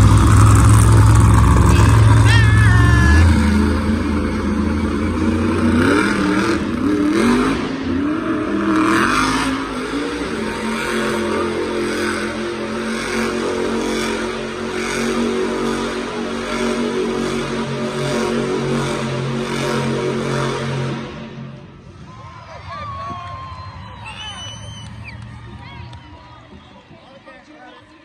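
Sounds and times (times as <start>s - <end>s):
truck engine revving: 0.0s - 21.9s.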